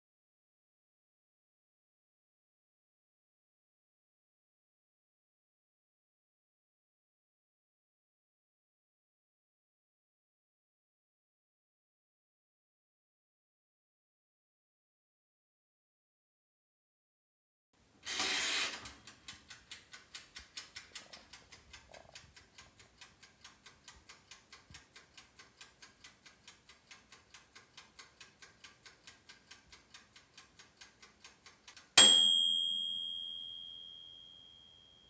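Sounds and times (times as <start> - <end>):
timer dial winding rasp: 18.0 - 32.6
timer ticking: 18.8 - 34.4
bell ding: 32.0 - 35.0.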